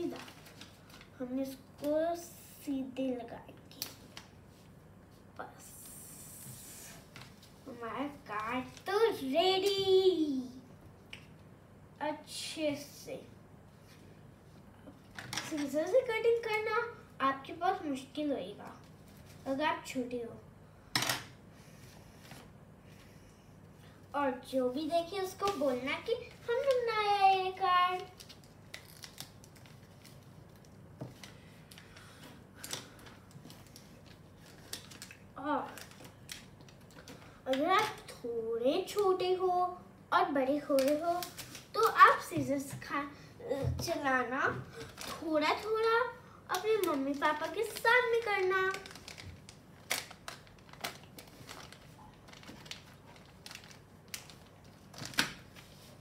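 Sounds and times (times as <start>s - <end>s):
paper card crinkling: 0.0s - 1.2s, 25.2s - 38.0s, 44.7s - 56.0s.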